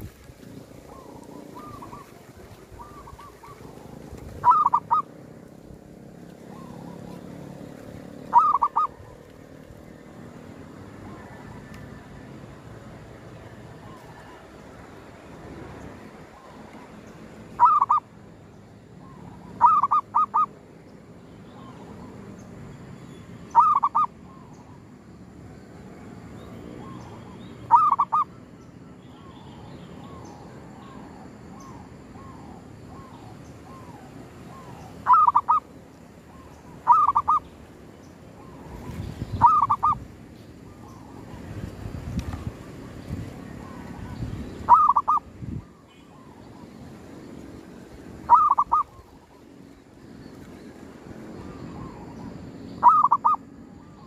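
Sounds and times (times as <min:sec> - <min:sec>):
dove cooing: 0:00.0 - 0:09.8, 0:17.6 - 0:18.1, 0:19.0 - 0:20.6, 0:23.5 - 0:24.8, 0:26.8 - 0:28.4, 0:30.0 - 0:37.5, 0:38.4 - 0:41.7, 0:43.3 - 0:46.8, 0:48.2 - 0:49.5, 0:51.4 - 0:54.0.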